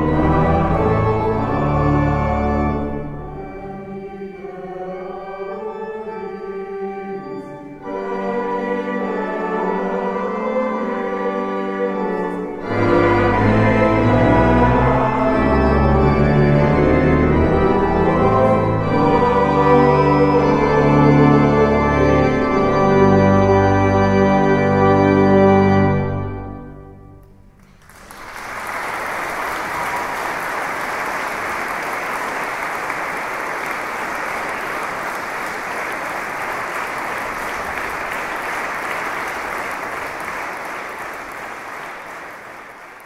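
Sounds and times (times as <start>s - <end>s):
choir singing: 0.0s - 23.7s
pipe organ chord: 0.0s - 27.6s
audience applause: 27.6s - 43.0s.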